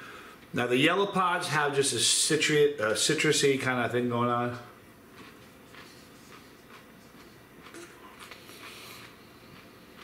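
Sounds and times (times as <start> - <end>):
wet chewing sounds: 5.1 - 10.0.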